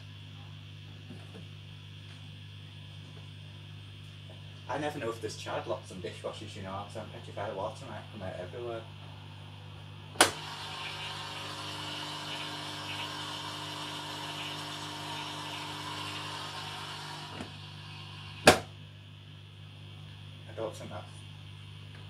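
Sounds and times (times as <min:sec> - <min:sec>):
motor hum: 0:07.9 - 0:20.2.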